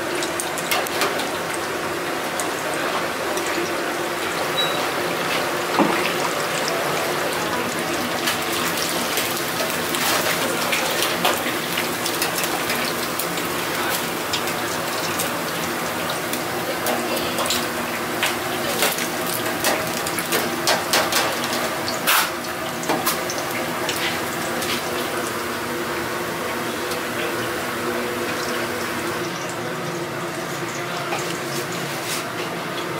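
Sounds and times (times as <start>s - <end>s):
oil sizzling in deep fryer: 0.0s - 32.9s
metal fry baskets clinking: 4.4s - 25.3s.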